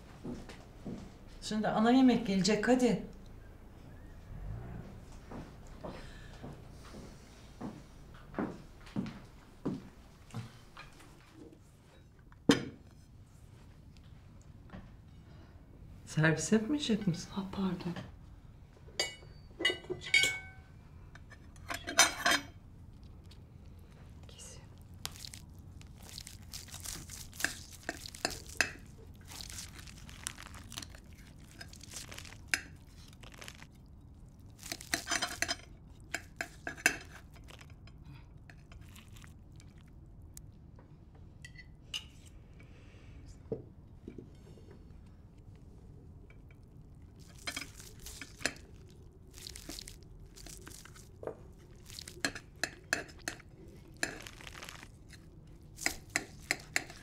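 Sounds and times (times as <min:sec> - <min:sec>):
cutlery scraping on plate: 0:21.2 - 0:22.5.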